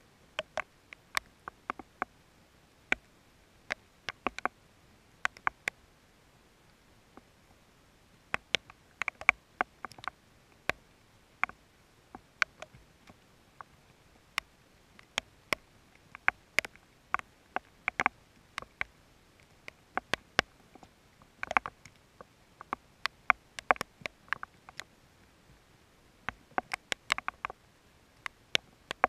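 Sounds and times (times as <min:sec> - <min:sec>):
raindrops ticking: 0:00.3 - 0:02.2, 0:02.9 - 0:04.6, 0:05.2 - 0:05.8, 0:08.4 - 0:10.8, 0:11.4 - 0:24.9, 0:26.2 - 0:29.0.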